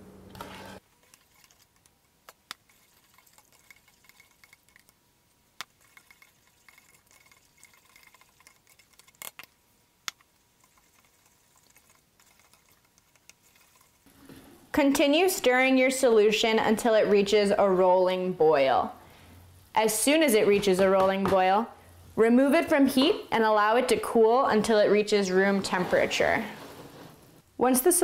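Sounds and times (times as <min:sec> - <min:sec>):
spoon swishing and scraping: 0:00.6 - 0:01.9, 0:02.6 - 0:04.9, 0:05.7 - 0:09.2, 0:10.5 - 0:14.7, 0:25.1 - 0:27.4.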